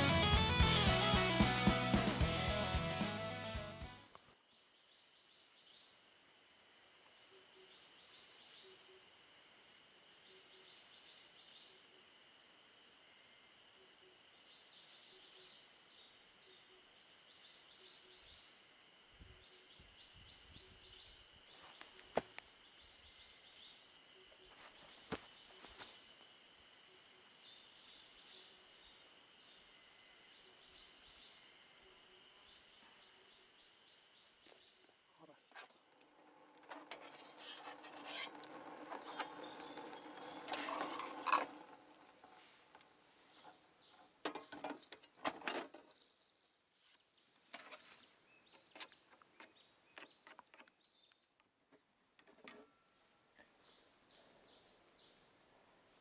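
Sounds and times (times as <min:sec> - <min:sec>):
steady high-pitched whine: 0:05.2 - 0:43.3
rustling and crackling: 0:35.5 - 0:46.1.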